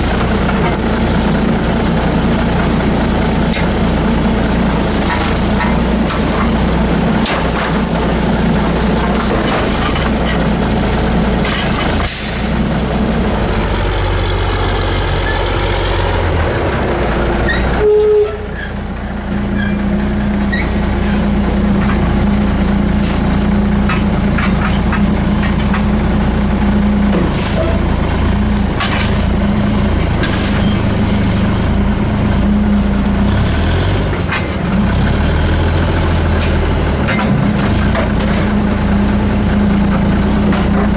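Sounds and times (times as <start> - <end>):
truck diesel engine running: 0.0 - 40.9
air brake release: 12.0 - 12.6, 21.0 - 21.3, 23.0 - 23.3, 27.3 - 27.7.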